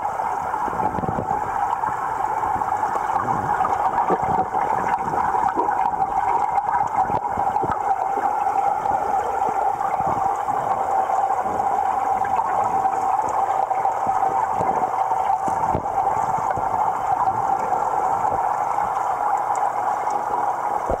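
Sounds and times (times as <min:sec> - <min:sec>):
muffled rush of water: 0:00.0 - 0:21.0
faint clicks and knocks: 0:00.6 - 0:21.0.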